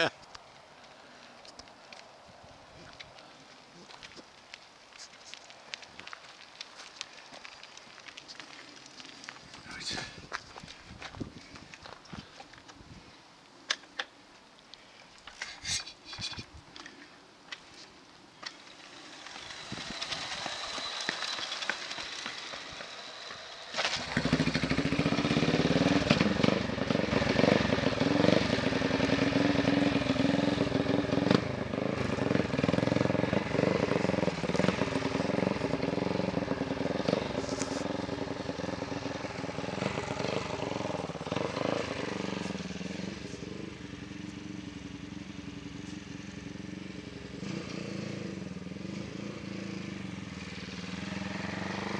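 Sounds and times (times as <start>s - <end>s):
motorcycle engine revving: 18.6s - 51.9s.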